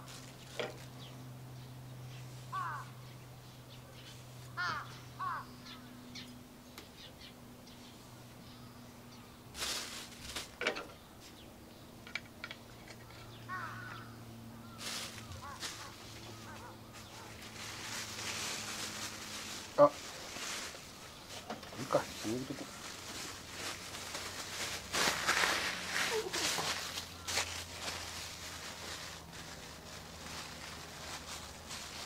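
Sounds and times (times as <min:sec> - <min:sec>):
crows cawing: 0:02.4 - 0:03.1, 0:04.4 - 0:06.0, 0:13.0 - 0:17.7, 0:26.7 - 0:28.0.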